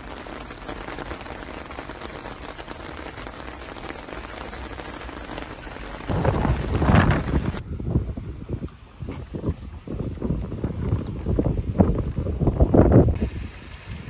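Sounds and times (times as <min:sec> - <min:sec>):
rain on wet pavement: 0:00.0 - 0:07.6.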